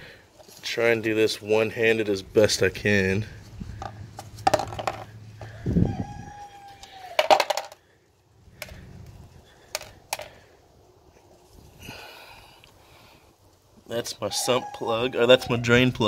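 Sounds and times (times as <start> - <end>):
metal pieces clattering on plastic: 7.2 - 7.8.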